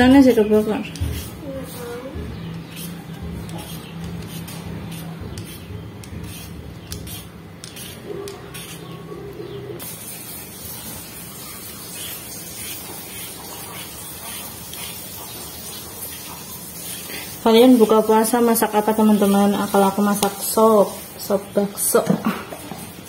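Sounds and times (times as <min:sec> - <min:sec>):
peeler scraping vegetable skin: 0:02.5 - 0:09.0.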